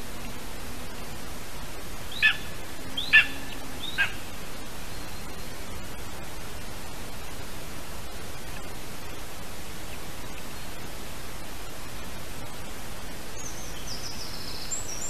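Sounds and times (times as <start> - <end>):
steady hiss: 0.0 - 15.0
eagle yelping calls: 2.1 - 4.3.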